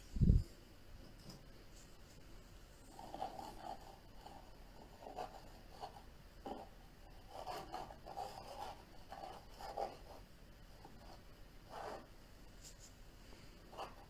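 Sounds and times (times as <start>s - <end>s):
paintbrush scratching on canvas: 2.8s - 10.2s, 10.8s - 13.0s, 13.7s - 14.0s.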